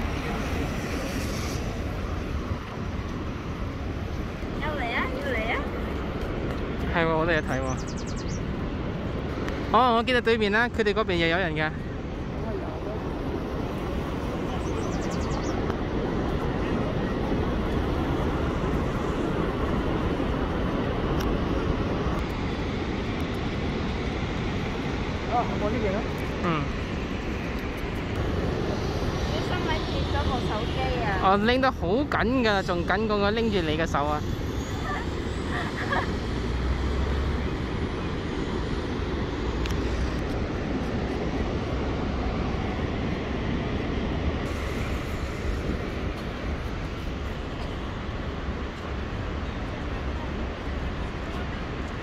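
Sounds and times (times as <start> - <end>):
waterfall rushing rumble: 35.6 - 52.0.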